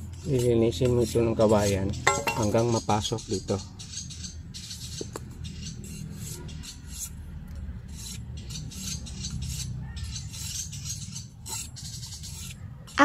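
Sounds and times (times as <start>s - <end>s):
knife blade shaving bamboo: 0.1s - 2.5s, 5.6s - 13.0s.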